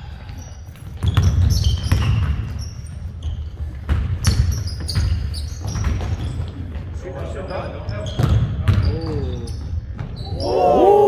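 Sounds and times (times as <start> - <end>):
sneakers squeaking: 0.0 - 10.8
basketball bouncing: 0.8 - 7.0, 8.0 - 10.2.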